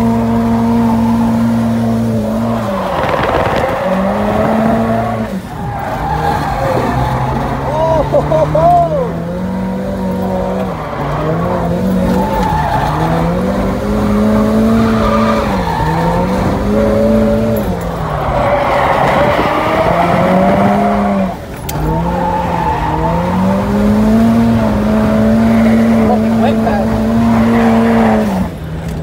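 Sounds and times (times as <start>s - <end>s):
car engine revving high: 0.0s - 28.8s
tyres skidding: 0.0s - 29.0s.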